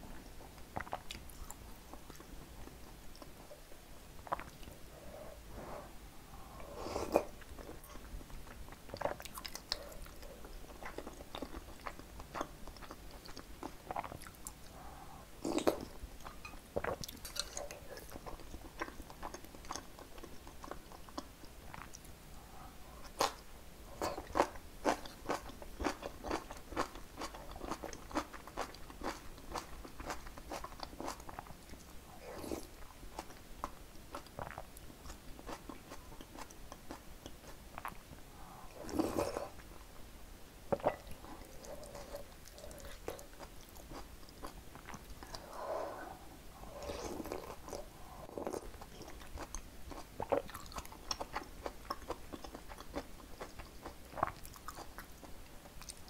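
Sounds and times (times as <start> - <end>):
chewing and biting food: 48.4 - 55.1.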